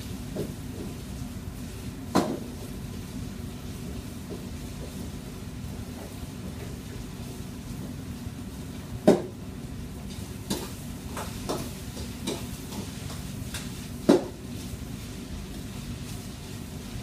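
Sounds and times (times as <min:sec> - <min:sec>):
food sizzling: 0:09.6 - 0:17.0.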